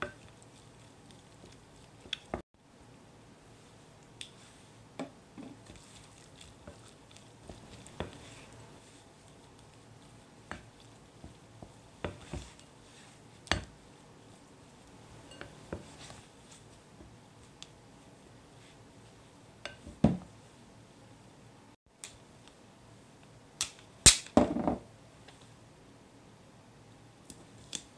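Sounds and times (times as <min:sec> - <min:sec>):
spatula stirring thick dough: 0:00.0 - 0:02.4, 0:03.4 - 0:20.0.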